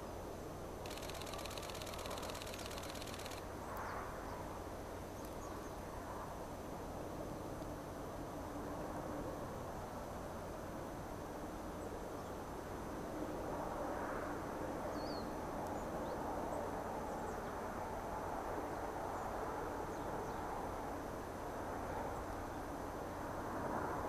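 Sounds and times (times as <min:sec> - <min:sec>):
faint bird chirps: 0:00.9 - 0:04.0.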